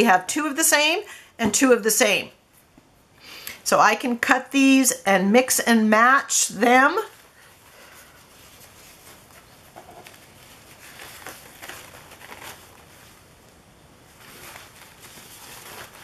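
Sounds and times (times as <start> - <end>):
paper napkins rustling: 6.7 - 16.0.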